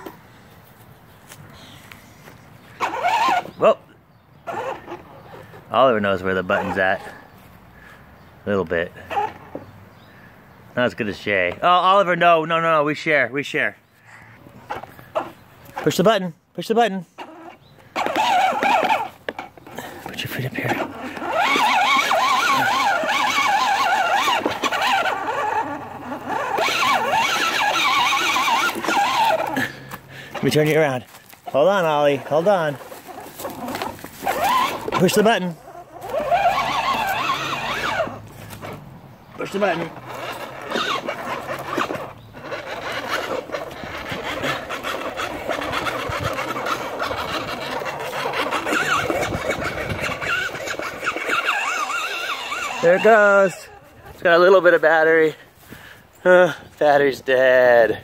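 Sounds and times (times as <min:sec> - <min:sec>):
toy electric motor whirring: 0:02.6 - 0:03.7, 0:04.4 - 0:07.2, 0:09.0 - 0:09.6, 0:14.1 - 0:16.1, 0:17.2 - 0:55.1
high wavering squeals: 0:31.8 - 0:38.4.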